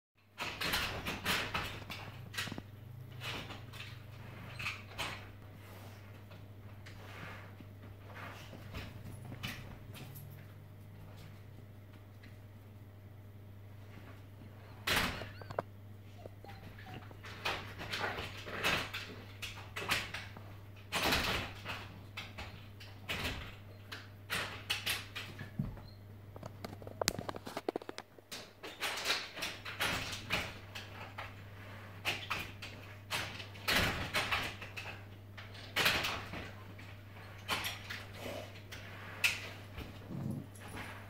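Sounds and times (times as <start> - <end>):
door rattling in frame: 0.3 - 5.4, 13.8 - 41.0.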